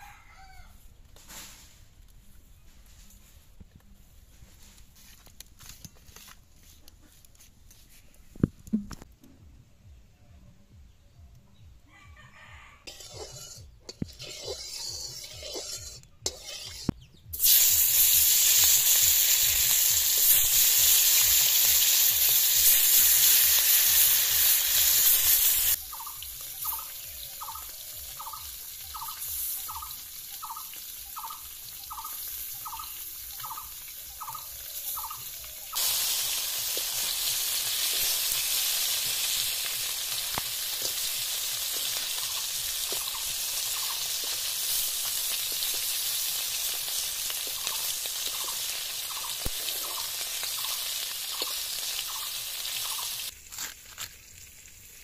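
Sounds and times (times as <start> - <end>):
fish frying in sizzling oil: 12.9 - 55.0.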